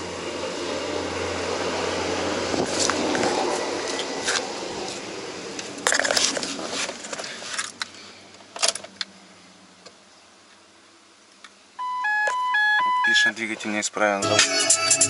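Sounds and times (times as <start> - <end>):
rustling and handling noise: 5.6 - 9.0.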